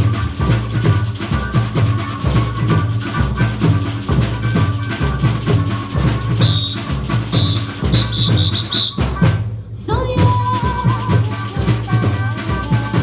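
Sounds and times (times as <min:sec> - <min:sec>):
fast shakers: 0:00.0 - 0:09.3, 0:10.1 - 0:13.0
bass drums beating: 0:00.0 - 0:13.0
shrill whistle blowing: 0:06.3 - 0:09.3.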